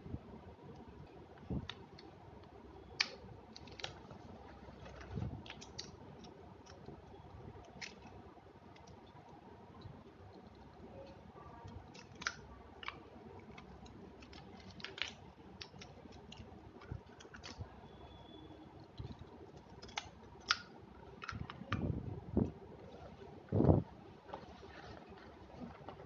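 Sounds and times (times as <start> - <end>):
plastic pens clicking and tapping: 5.4 - 17.6, 18.8 - 21.9.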